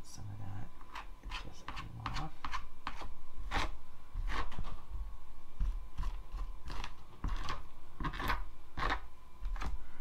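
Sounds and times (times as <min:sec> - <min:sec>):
comb scratching through faux fur: 0:00.9 - 0:04.7.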